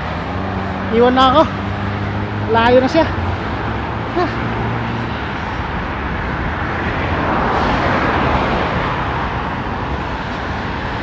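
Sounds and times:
road traffic: 0.0 - 11.0
wind rushing: 3.1 - 11.0.

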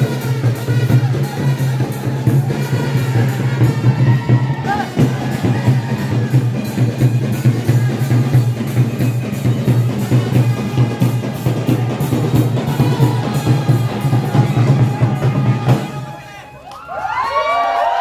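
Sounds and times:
loud dance music: 0.0 - 16.1.

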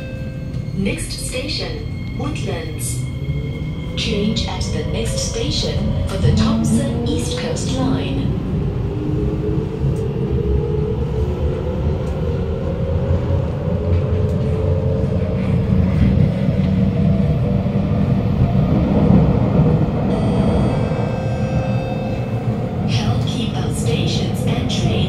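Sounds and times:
traction motor whine: 20.1 - 22.7.

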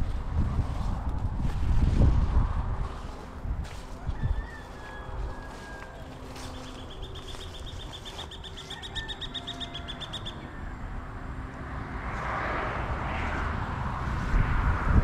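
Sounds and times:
low steady rumble: 0.0 - 12.1
passing vehicle: 0.0 - 15.0
bird trilling: 4.2 - 10.7.

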